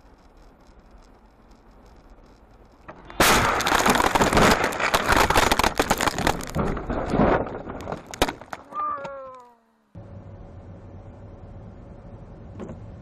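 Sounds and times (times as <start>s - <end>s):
car crash clattering and crunching: 2.9s - 8.7s
road noise inside car: 10.0s - 13.0s.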